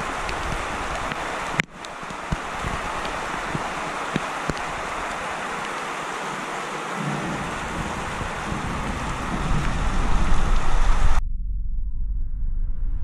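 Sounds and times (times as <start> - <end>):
heavy rain pouring: 0.0 - 11.2
deep rumble of thunder: 7.0 - 13.0.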